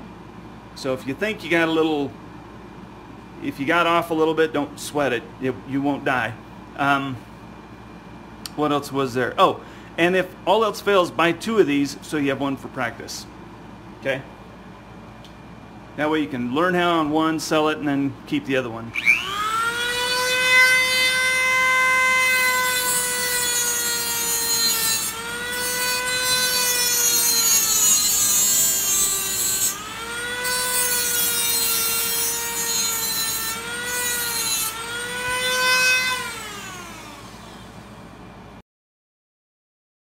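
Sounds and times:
rotary tool grinding metal: 0:19.0 - 0:37.7.

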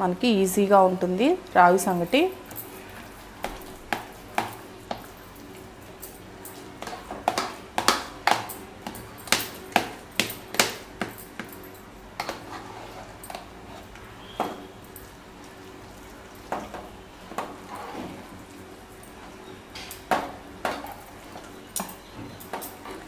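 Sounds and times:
metal ladle scraping a pot: 0:12.2 - 0:14.7, 0:17.4 - 0:18.2.

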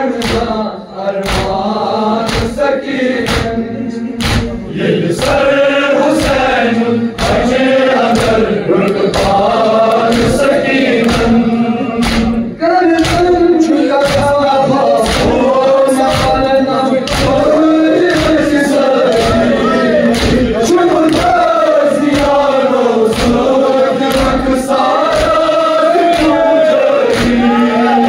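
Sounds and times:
men chanting in unison: 0:00.0 - 0:28.0
hands striking chests: 0:04.2 - 0:04.6, 0:12.0 - 0:12.4, 0:13.0 - 0:13.4, 0:15.0 - 0:17.4, 0:20.1 - 0:20.5.

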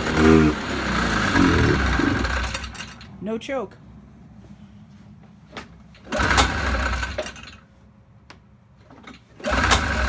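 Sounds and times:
snowmobile engine cranking and firing: 0:00.0 - 0:03.1, 0:05.9 - 0:07.6, 0:09.1 - 0:10.0.

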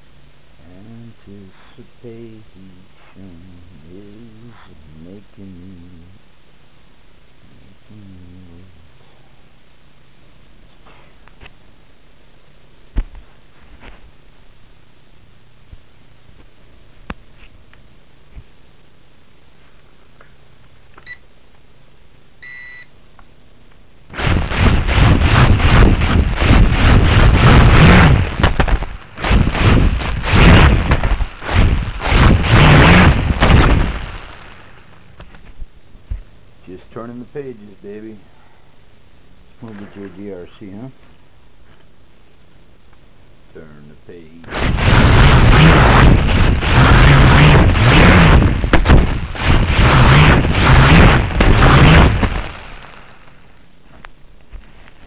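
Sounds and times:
prop wash on microphone: 0:24.2 - 0:34.4, 0:44.5 - 0:52.8
drone motors whirring: 0:24.2 - 0:34.5, 0:44.5 - 0:52.6.

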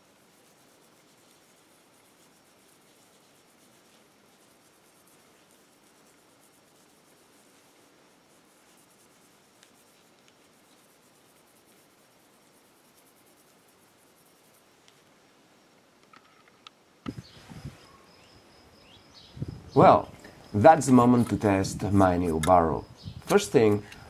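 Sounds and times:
cloth rubbing on metal: 0:00.0 - 0:14.9.

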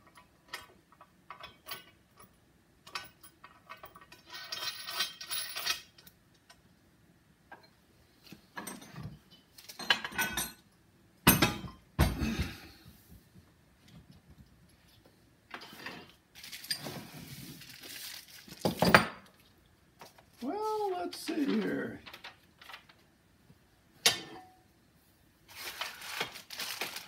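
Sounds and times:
bolts clinking on steel frame: 0:08.6 - 0:11.9.

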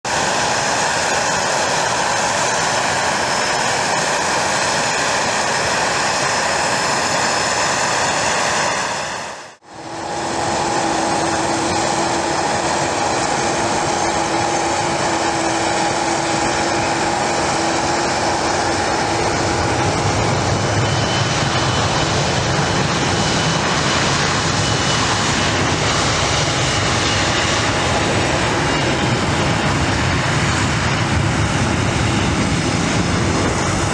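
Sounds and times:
jet engines whining: 0:00.1 - 0:33.9.

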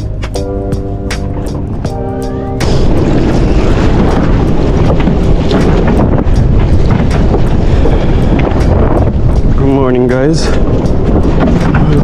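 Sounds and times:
strong wind buffeting microphone: 0:00.0 - 0:12.0
water noise: 0:00.0 - 0:12.0.

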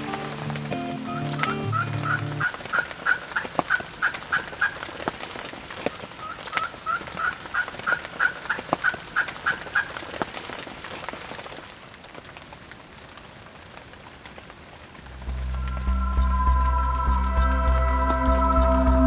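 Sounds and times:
wild turkey calling: 0:01.2 - 0:04.8, 0:06.2 - 0:10.0.

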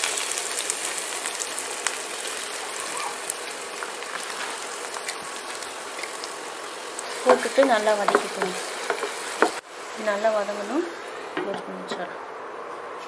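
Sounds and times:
small crackles: 0:00.0 - 0:09.6
onions sizzling in oil: 0:00.0 - 0:12.1.

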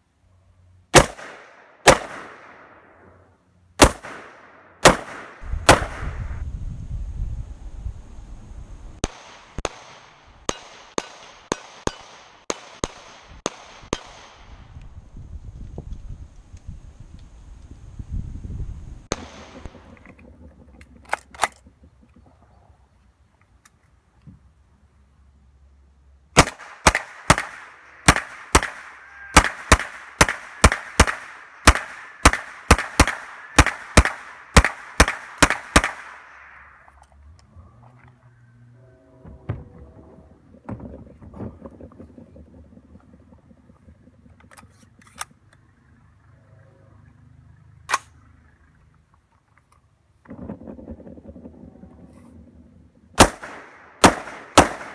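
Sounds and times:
pistol shots: 0:00.9 - 0:02.9, 0:03.8 - 0:06.3, 0:09.0 - 0:14.5, 0:26.4 - 0:36.6, 0:53.2 - 0:54.9.

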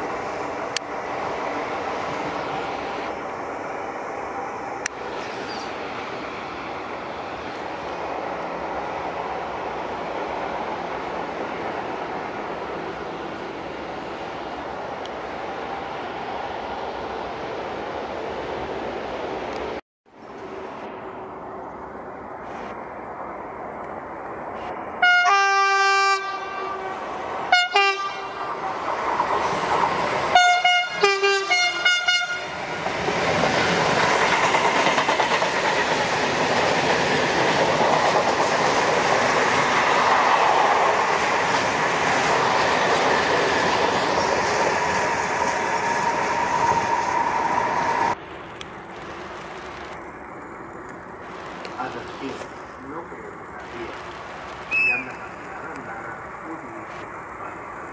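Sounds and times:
electric train approaching: 0:00.0 - 0:57.9
freight train rolling past: 0:00.0 - 0:57.9
locomotive horn: 0:25.0 - 0:28.4, 0:30.3 - 0:32.6.

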